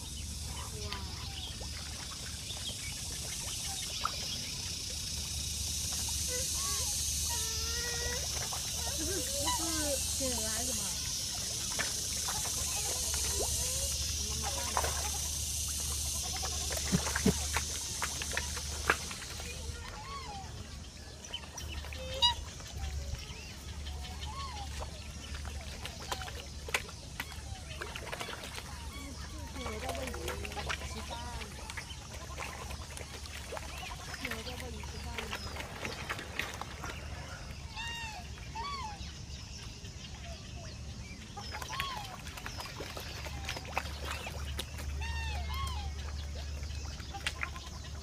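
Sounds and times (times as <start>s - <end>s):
swans calling: 5.9s - 20.8s, 21.4s - 26.4s, 27.2s - 39.1s.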